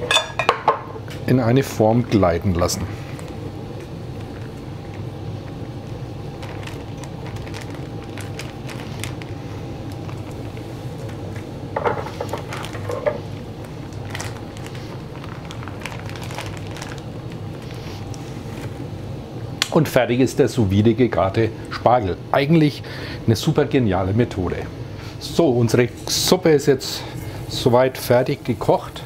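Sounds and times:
steady low hum: 0.0 - 29.0
plastic bag crinkling: 4.1 - 18.8.

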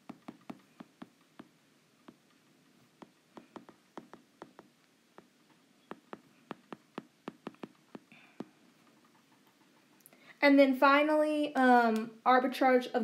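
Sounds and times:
stylus tapping on tablet screen: 0.0 - 9.8.

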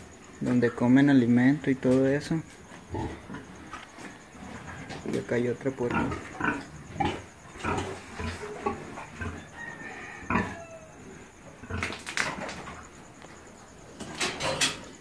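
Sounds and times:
farm animals calling: 1.7 - 12.0.

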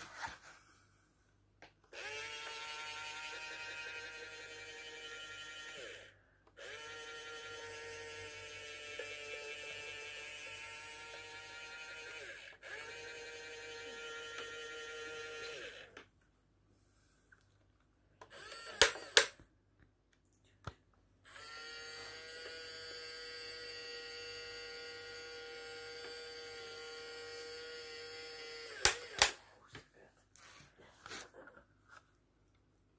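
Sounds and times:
electric gear motors whining: 2.0 - 16.0, 18.3 - 19.3, 21.3 - 29.2.

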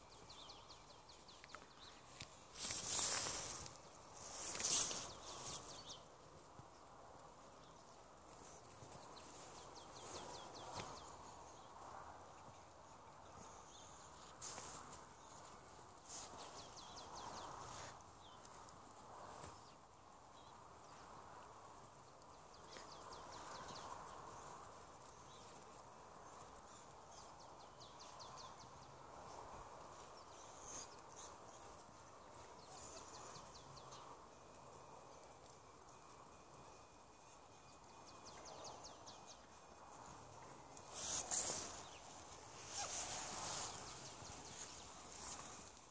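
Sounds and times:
bird chirps and trills: 30.0 - 34.5.

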